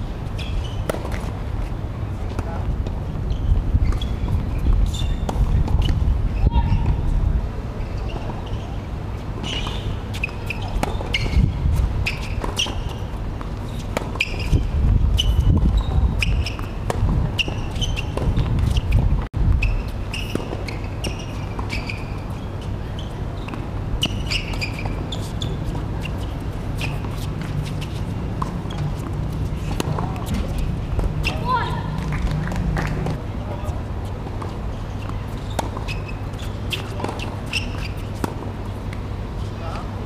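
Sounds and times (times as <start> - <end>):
shoe squeaks on court: 0.2 - 1.4, 3.1 - 7.0, 7.8 - 32.0, 33.0 - 39.6
tennis ball bounces: 23.5 - 33.2, 34.2 - 39.1.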